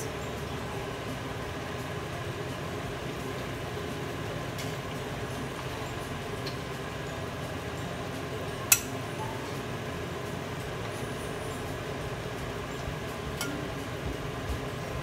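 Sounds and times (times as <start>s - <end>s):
steady background hum: 0.0s - 15.0s
tongs tapping: 8.6s - 9.3s, 13.3s - 14.7s
tongs clinking against bowl: 13.3s - 13.9s.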